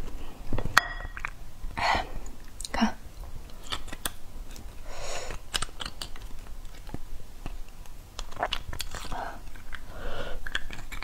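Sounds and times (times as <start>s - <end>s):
spoon scraping and clicking on bone: 5.5s - 6.9s, 8.2s - 11.0s.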